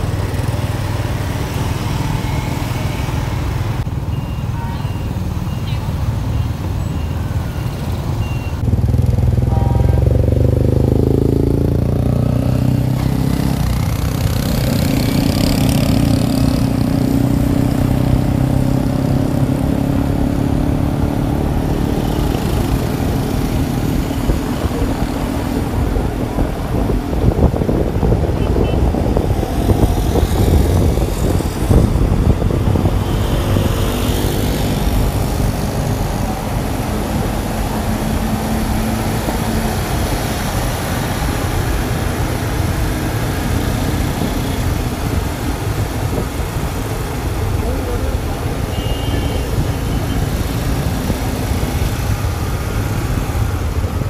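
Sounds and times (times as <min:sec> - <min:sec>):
traffic noise: 0:00.0 - 0:54.0
wind: 0:00.0 - 0:54.0.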